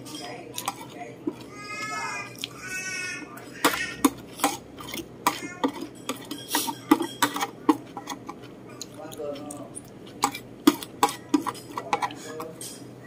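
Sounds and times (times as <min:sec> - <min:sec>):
metal spoon scraping ceramic plate: 0:00.0 - 0:01.5, 0:03.4 - 0:09.3, 0:10.1 - 0:12.9.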